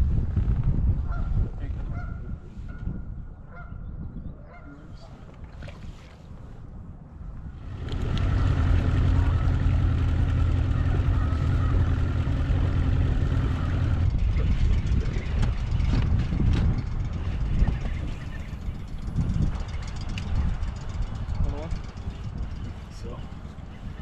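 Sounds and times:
outboard motor low drone: 0:04.9 - 0:24.0
higher motor hum: 0:07.5 - 0:23.8.

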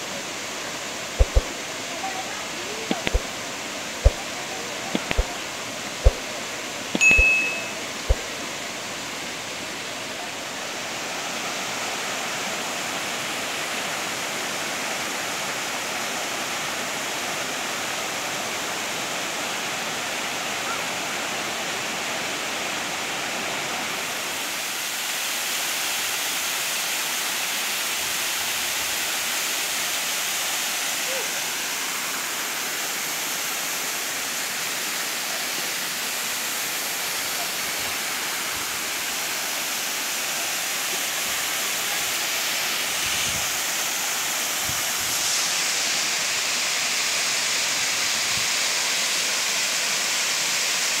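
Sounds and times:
waterfall rushing: 0:00.0 - 0:51.0
sharp clicks: 0:01.2 - 0:01.5, 0:02.9 - 0:03.3, 0:05.0 - 0:05.3, 0:06.0 - 0:06.3
short ding: 0:07.0 - 0:08.2.

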